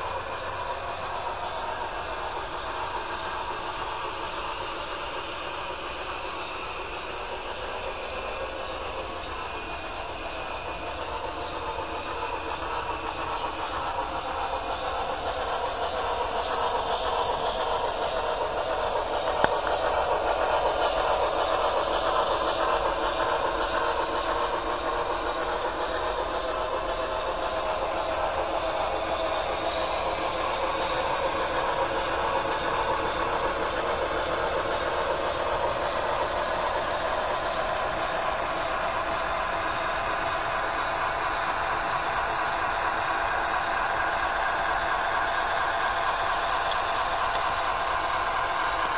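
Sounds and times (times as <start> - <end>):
model train running on track: 0.0 - 48.9.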